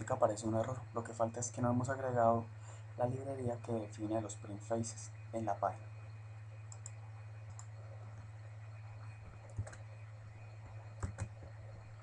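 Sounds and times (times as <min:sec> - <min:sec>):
steady low hum: 0:00.0 - 0:12.0
computer keyboard clicks: 0:06.7 - 0:07.7, 0:09.4 - 0:09.9, 0:11.0 - 0:11.6
mouse clicks: 0:06.7 - 0:07.8.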